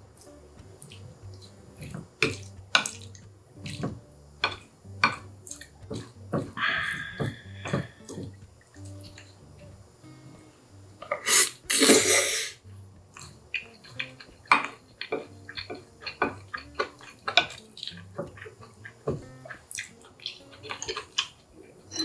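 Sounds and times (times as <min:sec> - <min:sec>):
wet chewing and mouth clicks: 0:00.1 - 0:10.2, 0:12.6 - 0:22.0
slurping noodles: 0:11.1 - 0:12.6.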